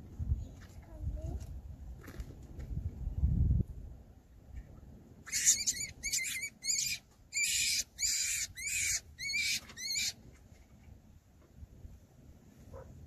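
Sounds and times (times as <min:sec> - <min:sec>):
animal high-pitched calls: 0:05.2 - 0:10.2.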